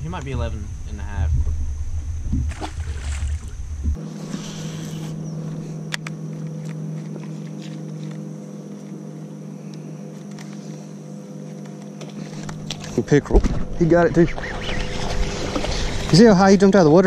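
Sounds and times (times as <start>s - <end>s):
low rumble: 0.0s - 4.1s
electric trolling motor humming: 0.0s - 17.0s.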